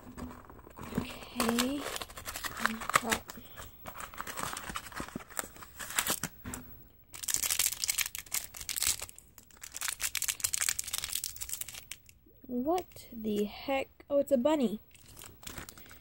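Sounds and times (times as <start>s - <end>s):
cardboard packaging crinkling: 0.0s - 6.5s, 7.1s - 12.2s, 14.9s - 16.0s.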